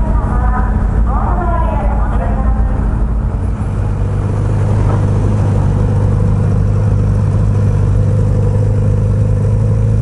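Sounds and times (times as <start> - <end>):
motorcycle engine idling: 0.0 - 10.0.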